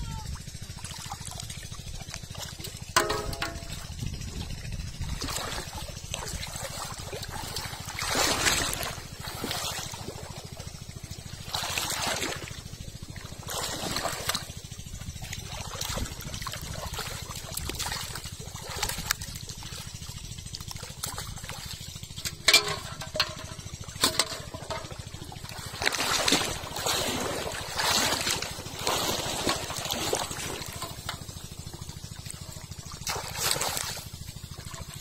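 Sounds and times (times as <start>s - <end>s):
water sloshing and splashing: 0.0s - 35.0s
sharp knocks: 2.9s - 3.9s.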